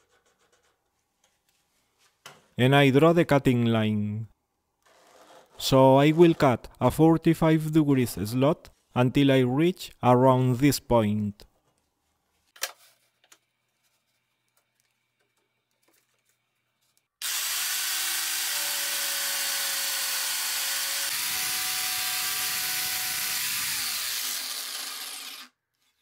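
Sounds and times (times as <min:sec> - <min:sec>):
jigsaw cutting plywood: 0:17.2 - 0:25.6.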